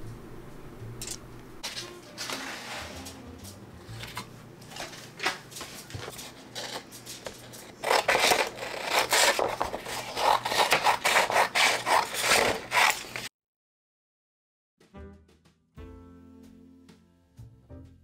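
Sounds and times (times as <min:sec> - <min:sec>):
sandpaper rustling: 0:01.6 - 0:03.3, 0:05.6 - 0:13.3
scissors cutting sandpaper: 0:06.0 - 0:13.3.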